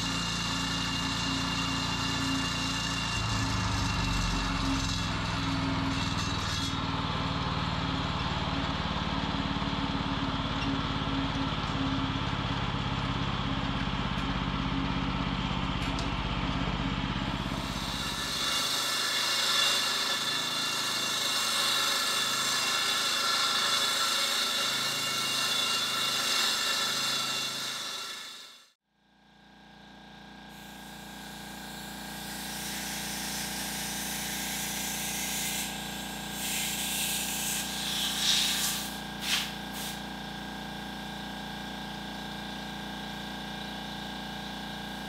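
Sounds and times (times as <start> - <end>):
low engine rumble: 3.4 - 17.9
harsh hissing grind: 17.5 - 28.6, 30.5 - 40.1.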